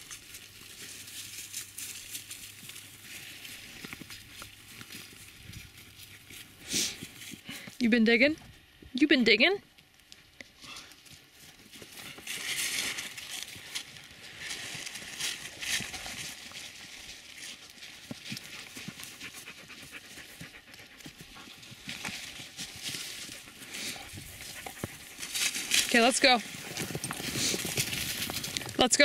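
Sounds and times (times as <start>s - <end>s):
dogs digging in dry leaves: 0.0s - 7.8s, 10.6s - 29.0s
dogs panting: 18.2s - 28.7s.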